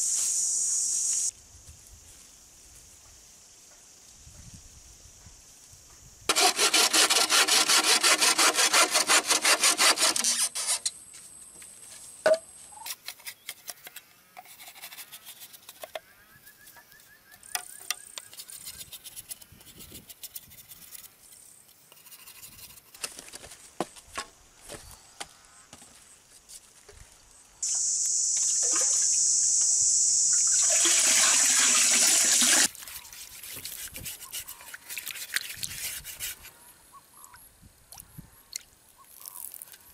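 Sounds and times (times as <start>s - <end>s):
loud rasping buzz: 6.3s - 10.8s.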